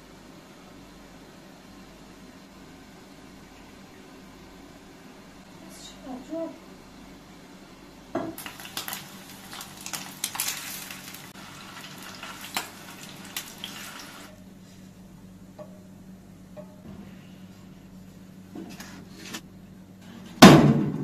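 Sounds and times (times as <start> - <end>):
cooking hiss: 8.2 - 14.4.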